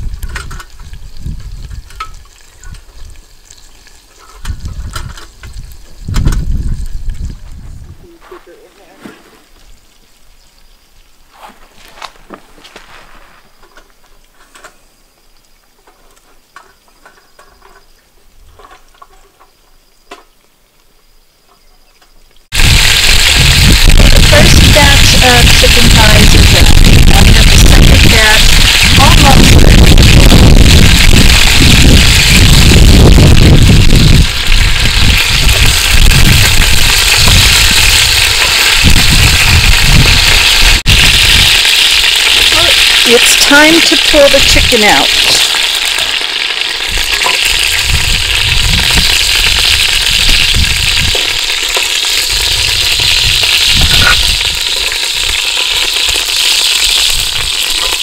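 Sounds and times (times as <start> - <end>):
chicken frying in oil: 0.0 - 7.6, 22.4 - 58.0
wind rumbling on microphone: 0.0 - 8.2, 22.5 - 45.8, 46.8 - 58.0.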